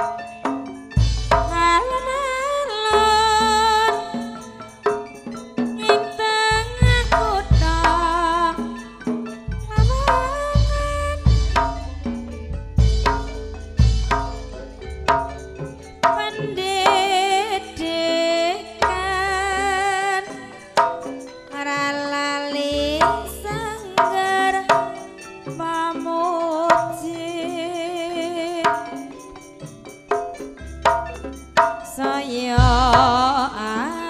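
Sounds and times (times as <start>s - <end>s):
gamelan dance music: 0.0s - 34.0s
hand-drum strokes: 0.0s - 34.0s
woman singing with vibrato: 1.5s - 4.8s, 5.8s - 8.9s, 9.6s - 12.1s, 16.1s - 20.6s, 21.5s - 29.1s, 31.9s - 34.0s.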